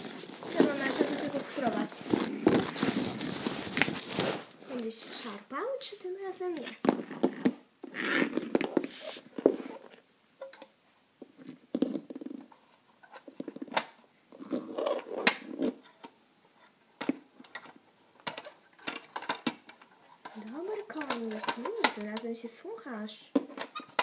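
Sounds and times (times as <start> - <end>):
plastic toys clicking and knocking: 17.0 - 22.4.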